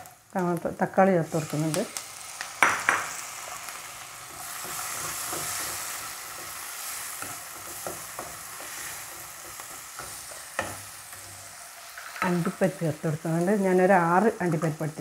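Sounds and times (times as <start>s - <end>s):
vegetables sizzling in a frying pan: 0.0s - 15.0s
spoon tapping and scraping pan: 2.5s - 3.2s, 4.3s - 12.6s.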